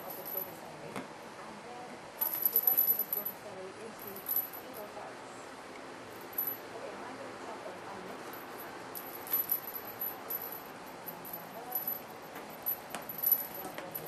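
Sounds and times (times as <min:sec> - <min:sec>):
small collar bell jingling: 0:00.0 - 0:00.6, 0:02.2 - 0:04.9, 0:06.2 - 0:06.6, 0:08.2 - 0:14.0.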